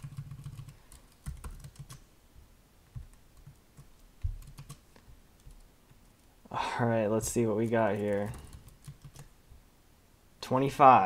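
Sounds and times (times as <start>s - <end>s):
typing on computer keyboard: 0.0s - 2.0s, 2.9s - 5.7s, 7.6s - 9.3s.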